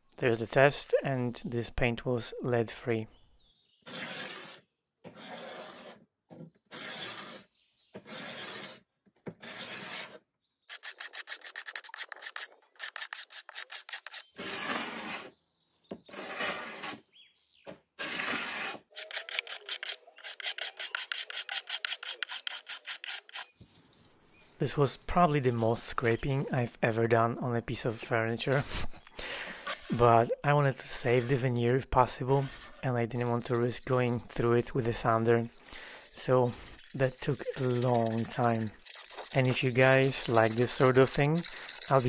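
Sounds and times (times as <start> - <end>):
scraper rasping paint off wood: 8.1 - 8.8, 9.4 - 15.3, 18.0 - 23.5, 30.8 - 42.0.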